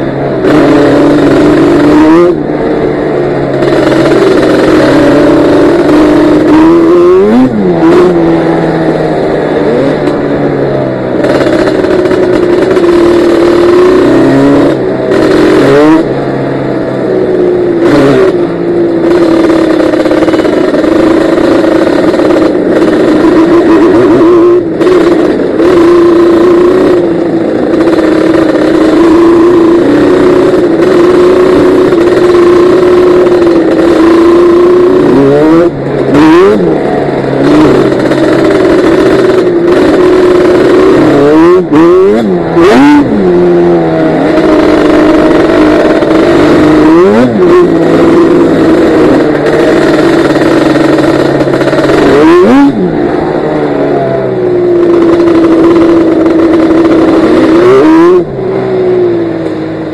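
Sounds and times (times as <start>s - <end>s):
atv engine running loud: 0.0s - 59.9s.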